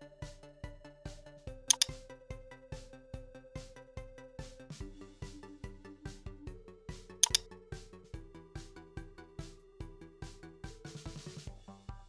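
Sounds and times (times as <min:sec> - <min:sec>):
electronic music with steady beat: 0:00.0 - 0:11.6
sharp clicks: 0:01.7 - 0:02.0, 0:07.2 - 0:07.4.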